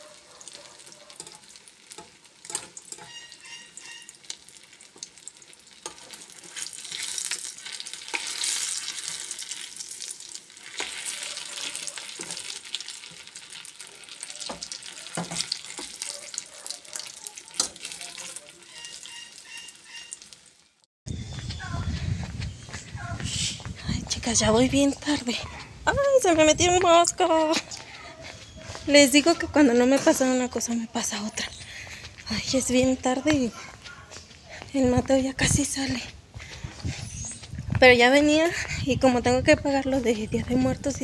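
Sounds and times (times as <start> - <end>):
food sizzling in oil: 0.0 - 20.8
utensil clicking against pan: 0.8 - 3.3.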